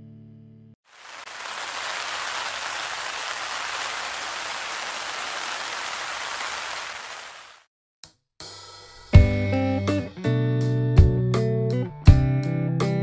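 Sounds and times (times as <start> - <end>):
steady hiss: 0.9 - 7.6.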